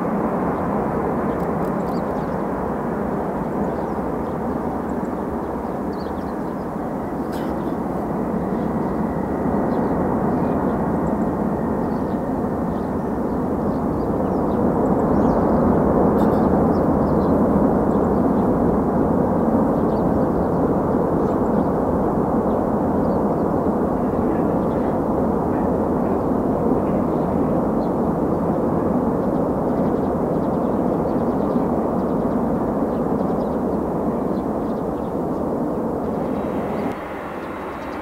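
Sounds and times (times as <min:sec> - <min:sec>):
jet engines rumbling: 0:00.0 - 0:38.0.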